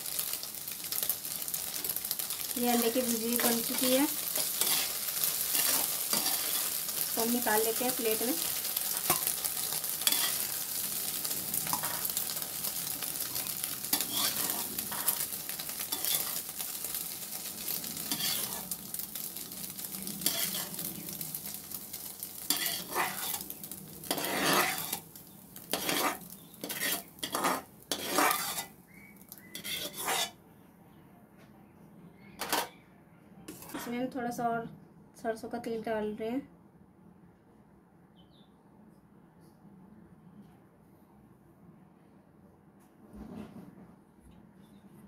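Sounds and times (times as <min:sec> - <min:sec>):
egg sizzling in pan: 0:00.0 - 0:30.4
metal spatula scraping pan: 0:02.8 - 0:12.2, 0:13.3 - 0:16.6, 0:18.0 - 0:18.7, 0:20.2 - 0:20.8, 0:22.5 - 0:25.0, 0:25.7 - 0:28.8, 0:29.5 - 0:30.4, 0:32.4 - 0:32.7, 0:33.5 - 0:34.0.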